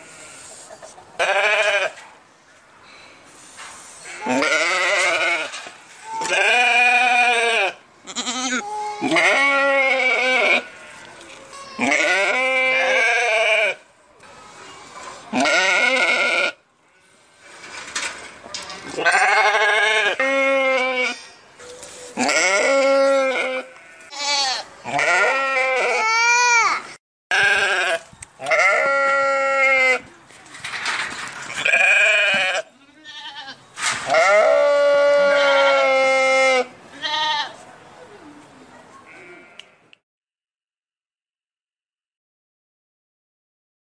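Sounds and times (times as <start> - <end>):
sheep bleating: 1.2 - 2.0, 4.2 - 5.6, 6.2 - 11.1, 11.7 - 13.8, 15.4 - 16.6, 19.0 - 21.2, 22.2 - 26.2, 27.3 - 30.0, 31.6 - 37.6.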